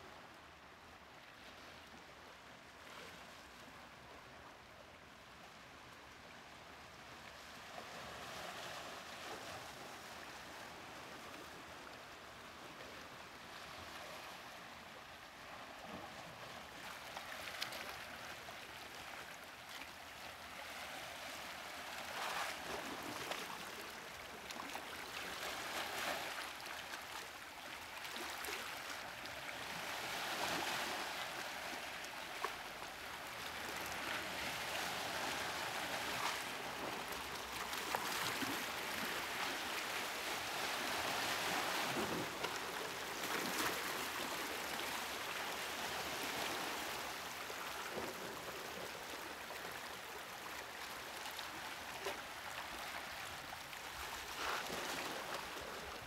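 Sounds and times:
sea waves washing ashore: 0:28.0 - 0:56.0.

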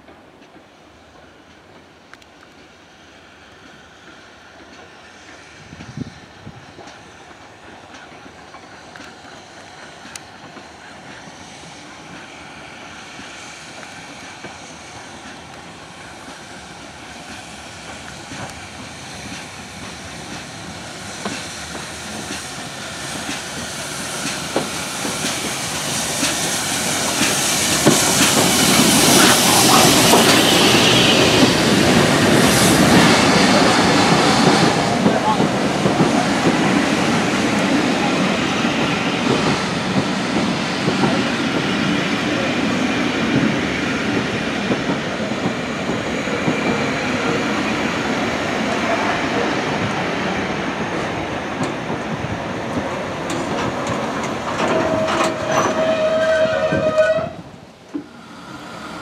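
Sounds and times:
steam train approaching: 0:00.0 - 0:59.0
loud steam hiss: 0:02.7 - 0:59.0
wheels clicking over rail joints: 0:51.6 - 0:57.2
wheel squeal: 0:54.6 - 0:57.4.

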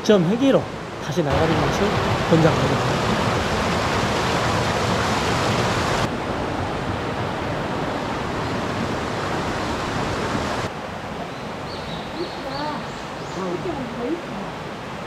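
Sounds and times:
water rushing over rocks: 0:00.0 - 0:11.2.

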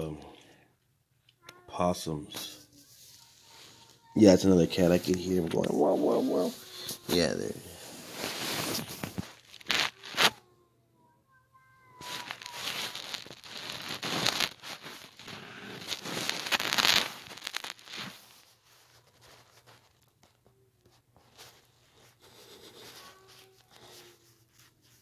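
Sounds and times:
cat yowling: 0:11.3 - 0:13.2.

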